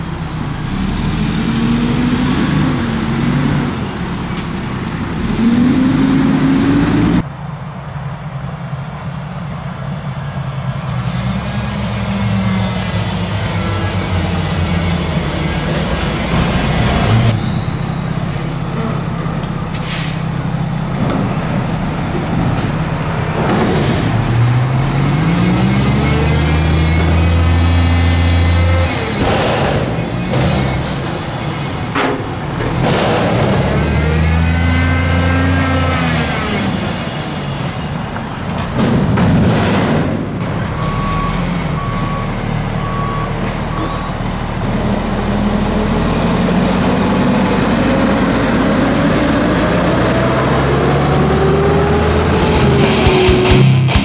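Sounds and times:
garbage truck engine revving: 0.0 - 7.2, 11.3 - 54.0
reversing alarm beeping: 40.8 - 44.3.

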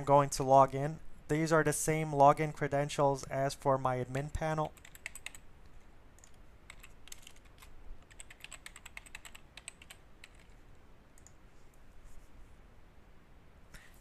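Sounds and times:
keyboard keys clicking: 4.6 - 5.4, 6.2 - 10.6.

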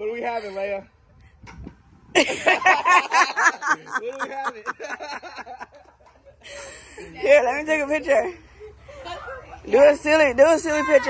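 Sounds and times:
person laughing: 2.2 - 5.8.

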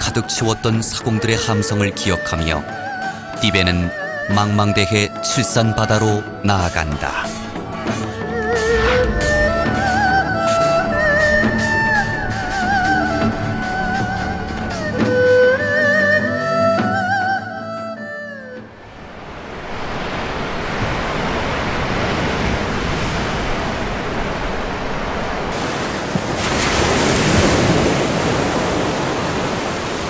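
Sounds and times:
sea surf rushing: 6.7 - 15.4, 18.8 - 30.0
music with falling glide: 7.3 - 18.8.

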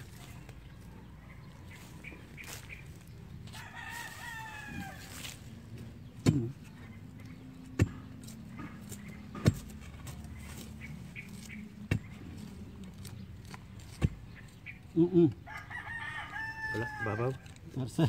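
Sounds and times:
rooster crowing: 3.5 - 5.2, 15.4 - 17.5
knife chopping into soil: 6.2 - 6.8, 7.7 - 10.3, 11.4 - 12.2, 13.0 - 14.3.

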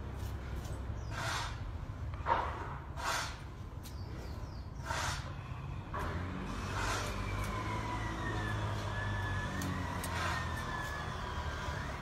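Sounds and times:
low motor rumble: 5.4 - 12.0.

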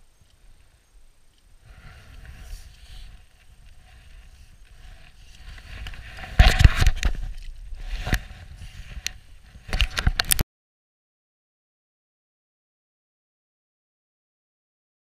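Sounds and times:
clothing rubbing on camera: 1.7 - 10.2
knocks and scrapes on camera: 3.8 - 10.4.

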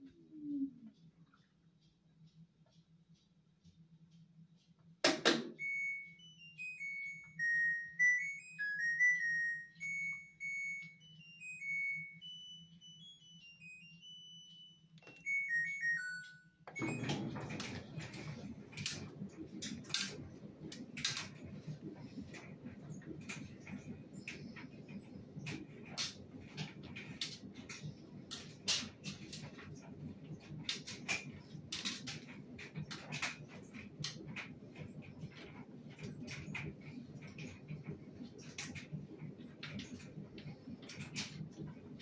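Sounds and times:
electronic beeps melody: 5.6 - 17.5.

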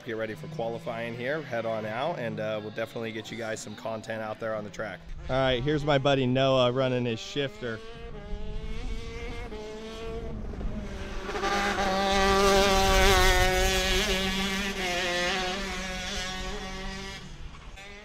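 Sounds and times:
kart engine racing past: 4.9 - 18.0.

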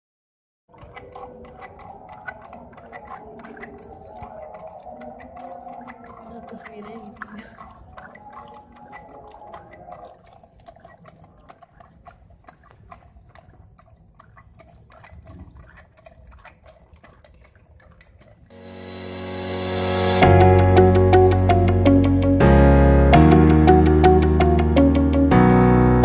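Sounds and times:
pump clicks: 0.7 - 18.5
water trickling and splashing: 0.7 - 20.3.

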